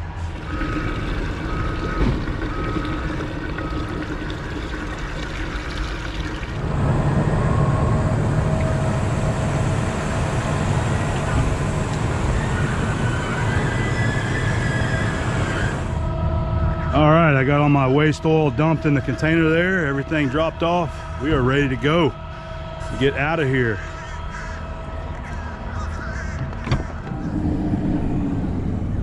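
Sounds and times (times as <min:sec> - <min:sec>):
faint beeping: 0:00.0 - 0:04.4
oil pouring into tank: 0:00.2 - 0:06.7.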